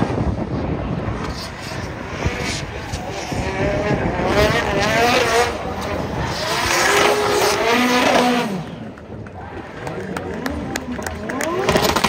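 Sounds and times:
car engine revving hard: 1.6s - 8.8s.

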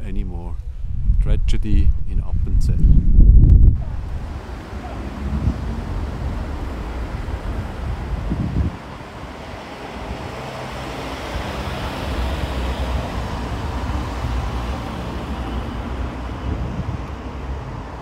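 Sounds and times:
cars passing: 3.8s - 18.0s.

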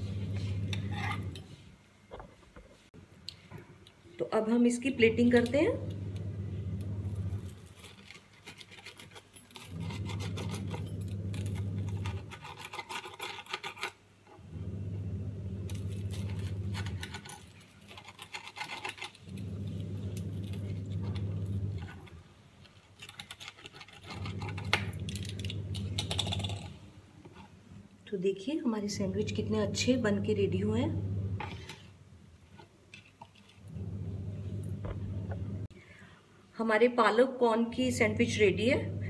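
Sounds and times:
low hum: 0.0s - 1.5s, 5.0s - 7.6s, 14.4s - 17.4s, 19.3s - 22.2s, 29.0s - 31.7s, 33.6s - 35.7s, 37.9s - 39.0s
knife sawing through toast: 12.0s - 14.0s, 17.9s - 19.2s.

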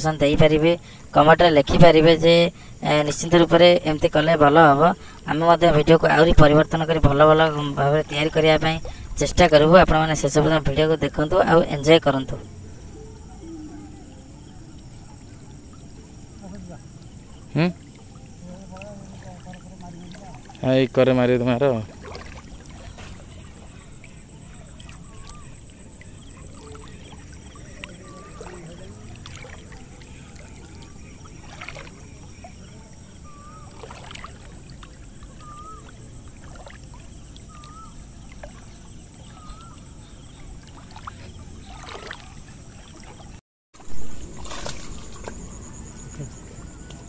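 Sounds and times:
water sloshing around legs: 0.0s - 47.0s
fish splashing at surface: 21.8s - 39.8s, 40.6s - 47.0s.

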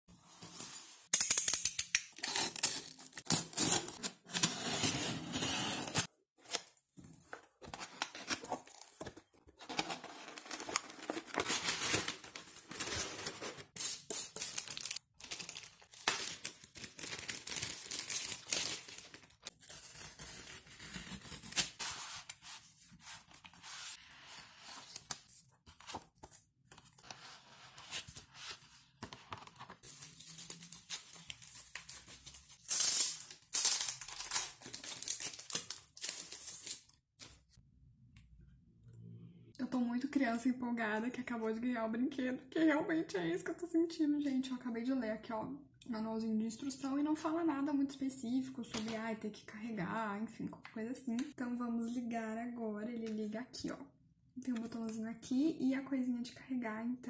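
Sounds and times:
cardboard and paper tearing: 2.2s - 6.1s.

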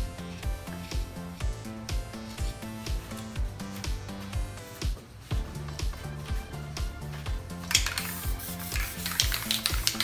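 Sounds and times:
background music with steady beat: 0.0s - 10.0s
spray paint can hisses: 7.6s - 10.0s.

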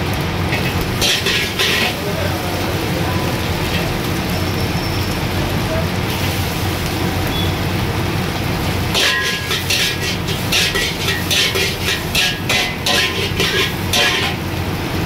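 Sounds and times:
ladle scraping a wok: 0.5s - 2.2s, 8.9s - 14.6s.

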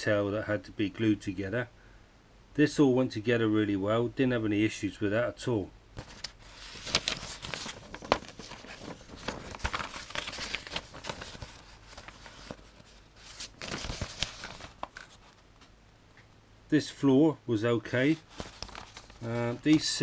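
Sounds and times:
paper rustling and crinkling: 6.0s - 15.7s, 18.0s - 20.0s.

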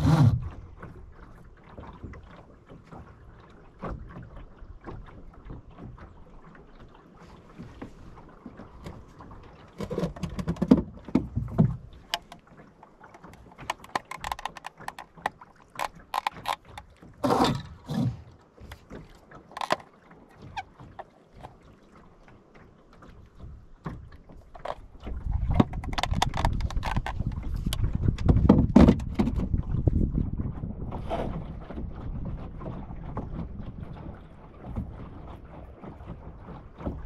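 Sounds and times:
boat knocks clicks and creaks: 0.0s - 37.0s
wind buffeting microphone: 25.0s - 37.0s.

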